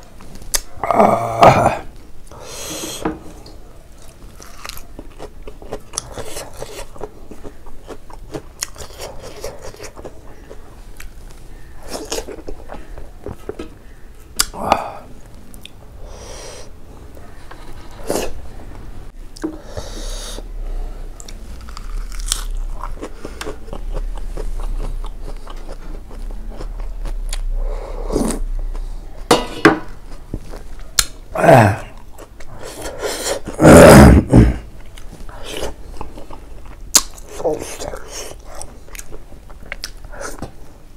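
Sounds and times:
chewing and biting: 0:04.0 - 0:11.2, 0:21.2 - 0:27.6, 0:34.8 - 0:40.5
mouth clicks and smacks: 0:14.3 - 0:14.9, 0:36.9 - 0:40.5.

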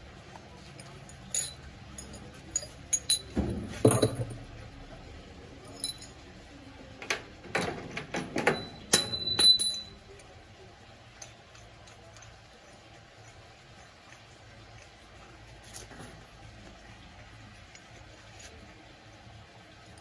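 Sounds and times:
metal tools clinking: 0:00.6 - 0:04.4, 0:05.6 - 0:06.3, 0:08.0 - 0:10.2.

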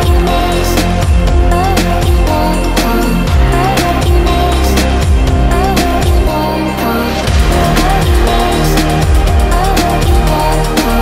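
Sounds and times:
bass: 0:00.0 - 0:11.0
drums: 0:00.0 - 0:11.0
wavering melody line: 0:01.4 - 0:11.0.

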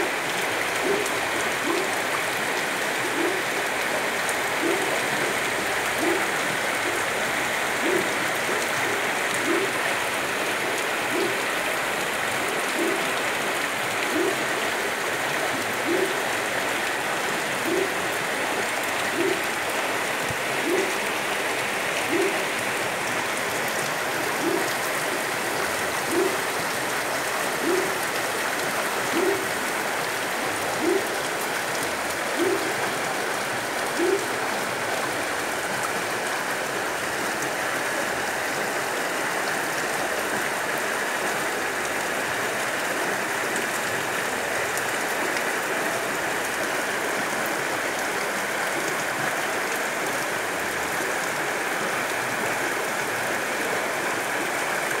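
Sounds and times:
heavy rain pouring: 0:00.0 - 0:55.0
runoff water rushing: 0:00.0 - 0:55.0.

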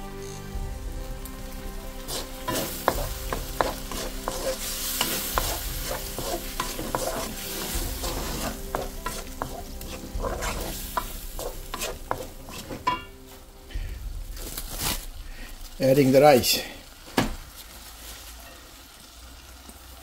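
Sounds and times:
food sizzling in a wok: 0:00.0 - 0:20.0
spatula knocking and scraping a pan: 0:02.0 - 0:13.8.

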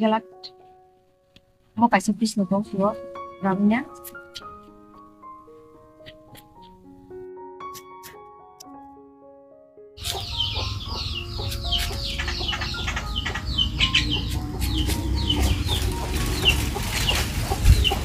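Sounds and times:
chickens clucking: 0:10.0 - 0:18.0.

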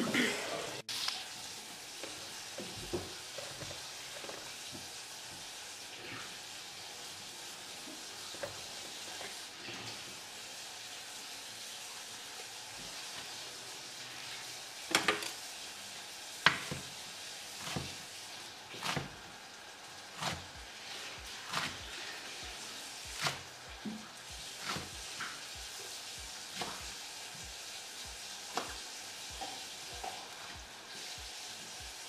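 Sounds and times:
tomatoes sizzling in a frying pan: 0:00.0 - 0:32.0
knife chopping on wooden board: 0:16.4 - 0:16.9, 0:26.6 - 0:26.9.

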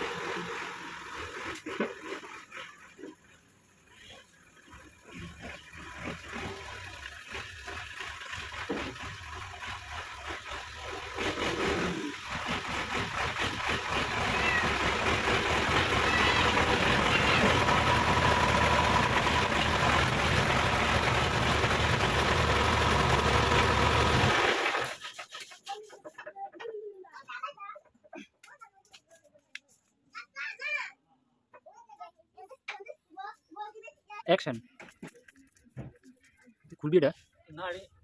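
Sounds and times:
diesel tractor engine running: 0:08.9 - 0:25.0.

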